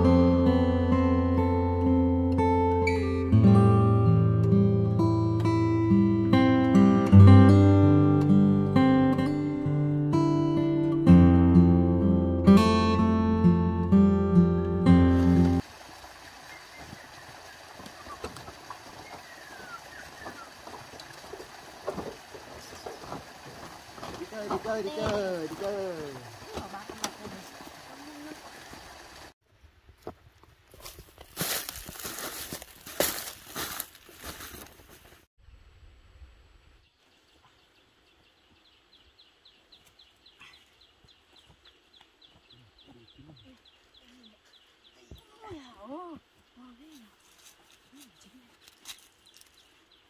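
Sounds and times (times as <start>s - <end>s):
footsteps on bamboo footbridge: 16.6s - 29.1s, 29.9s - 35.3s, 39.8s - 45.4s.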